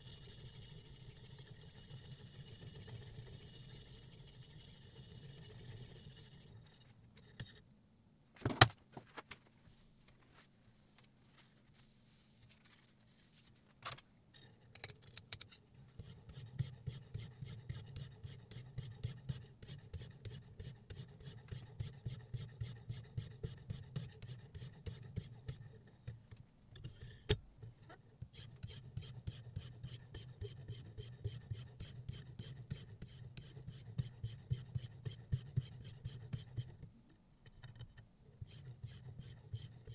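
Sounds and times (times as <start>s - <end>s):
stone rasping on knife edge: 28.4s - 36.8s, 38.5s - 39.9s.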